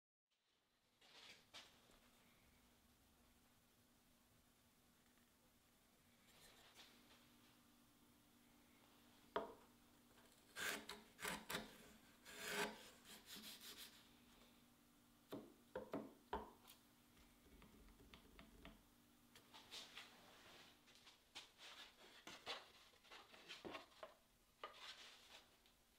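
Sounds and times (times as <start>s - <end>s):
plane blade scraping wood: 10.4s - 13.9s.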